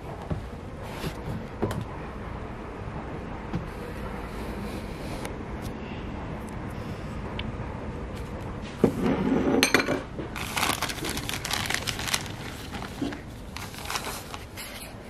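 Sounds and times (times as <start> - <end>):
plastic bag crinkling: 10.4 - 14.8.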